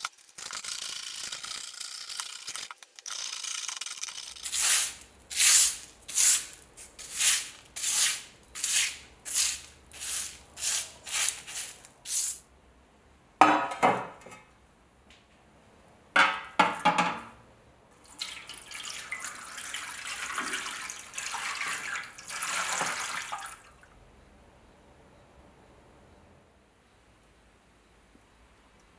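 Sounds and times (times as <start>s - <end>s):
paintbrush sweeping cardboard: 4.4s - 12.4s
liquid pouring into tray: 18.0s - 23.7s.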